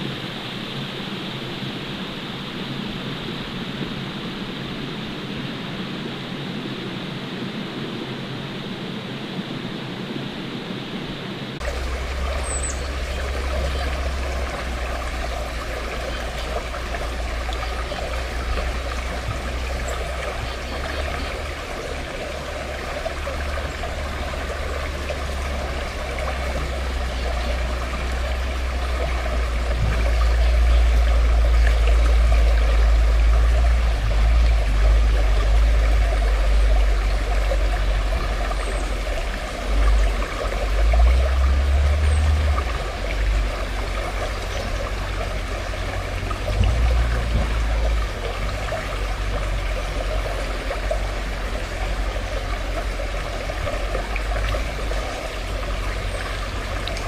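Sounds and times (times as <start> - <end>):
creek water trickling: 0.0 - 57.0
deep rumble: 11.6 - 57.0.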